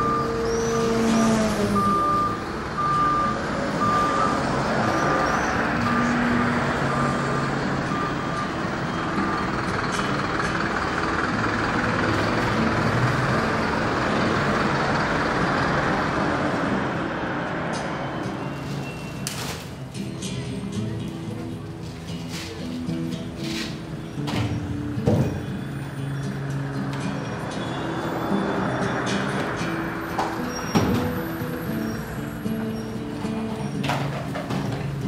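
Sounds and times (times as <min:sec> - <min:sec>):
reversing beeper beeps: 0:00.0 - 0:09.7
truck engine running: 0:00.0 - 0:35.0.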